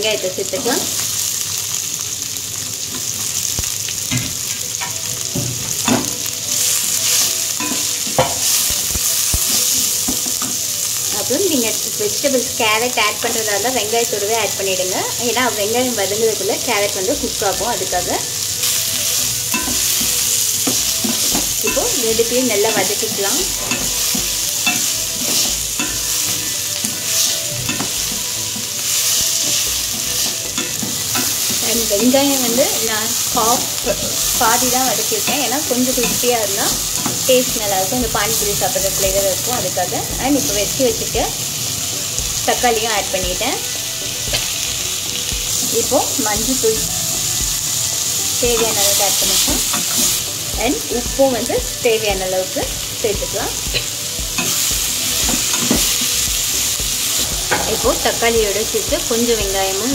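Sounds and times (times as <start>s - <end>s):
onions sizzling in hot oil: 0.0s - 59.9s
spatula scraping and knocking pan: 5.4s - 10.7s, 53.7s - 59.6s.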